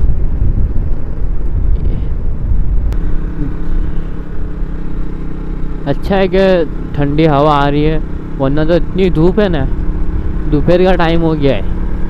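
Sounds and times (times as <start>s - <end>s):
wind buffeting microphone: 0.0s - 4.8s
motorcycle engine hum: 0.0s - 12.0s.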